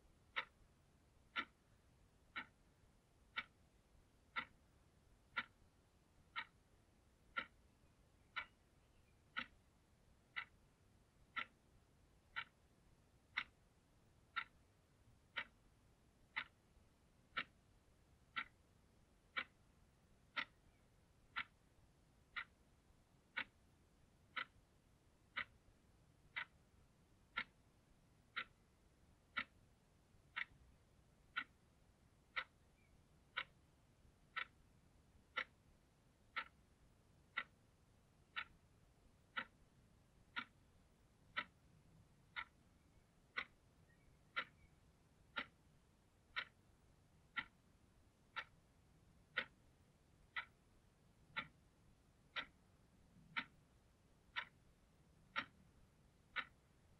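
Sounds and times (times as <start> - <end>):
alarm clock ticking: 0.0 - 56.9.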